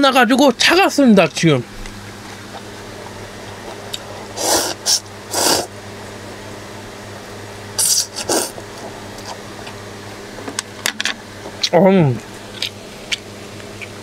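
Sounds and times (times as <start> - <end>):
steady low hum: 0.0 - 14.0
person slurping noodles: 4.4 - 5.7, 7.8 - 8.6.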